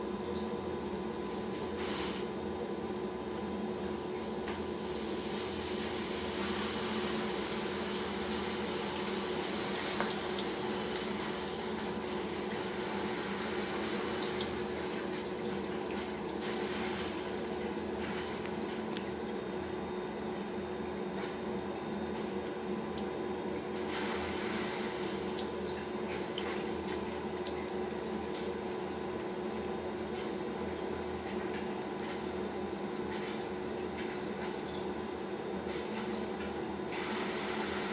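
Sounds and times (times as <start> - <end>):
electrical hum: 0.0 - 37.9
water sloshing and trickling: 7.4 - 37.9.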